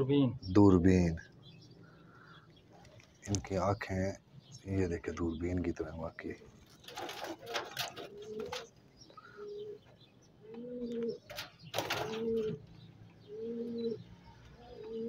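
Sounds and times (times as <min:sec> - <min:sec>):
pigeons cooing: 0:05.7 - 0:15.0
wing flapping: 0:06.6 - 0:08.7, 0:11.3 - 0:12.6.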